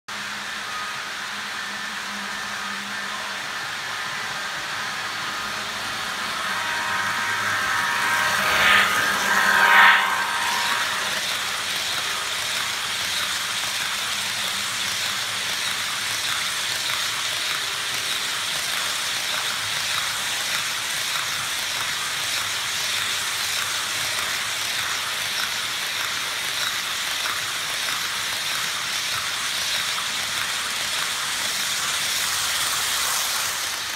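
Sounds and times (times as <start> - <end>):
model locomotive diesel engine sound: 0.1 - 33.9
model train wheels rolling hiss: 9.6 - 33.9.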